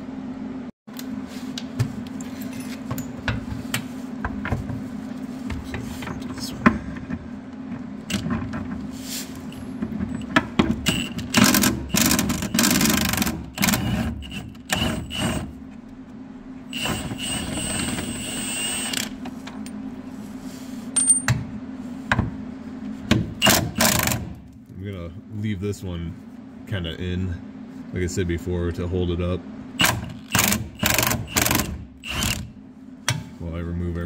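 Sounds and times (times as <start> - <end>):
impact wrench hammering: 29.8 - 32.5.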